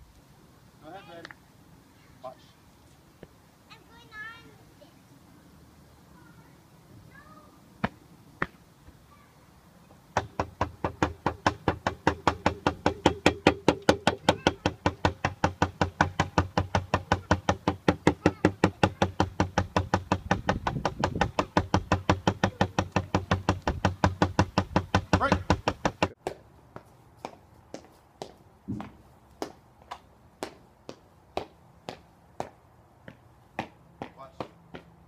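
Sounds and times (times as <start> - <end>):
sharp knocks: 10.1 - 26.2
rapid run of sharp knocks: 10.2 - 26.2.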